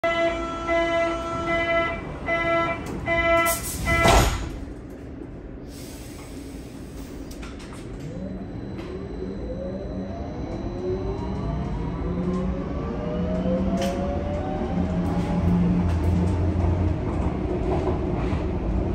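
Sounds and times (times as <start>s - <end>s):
train doors thudding shut: 2.3s - 4.9s
train traction drive whine: 6.2s - 18.9s
door warning beeps: 7.4s - 12.4s.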